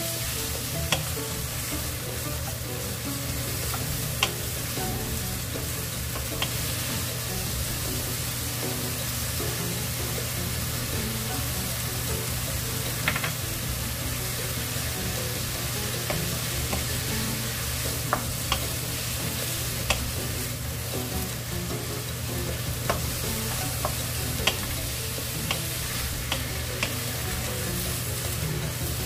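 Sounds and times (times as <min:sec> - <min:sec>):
vegetables sizzling in a pan: 0:00.0 - 0:29.0
spatula clicking against pan: 0:00.7 - 0:01.8, 0:03.7 - 0:04.8, 0:06.1 - 0:06.8, 0:15.4 - 0:19.0, 0:19.8 - 0:20.2, 0:22.8 - 0:27.2
wooden spatula scraping: 0:22.5 - 0:29.0.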